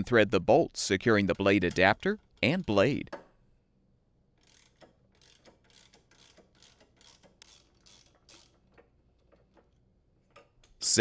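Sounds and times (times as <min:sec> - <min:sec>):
socket ratchet clicking: 0:04.4 - 0:09.7.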